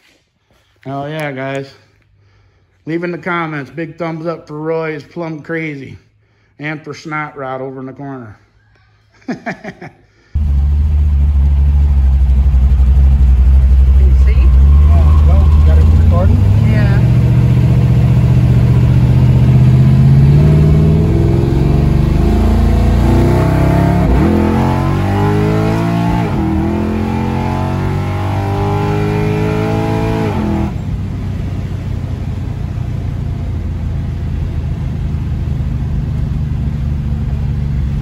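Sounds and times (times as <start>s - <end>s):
car engine revving: 10.4s - 31.9s.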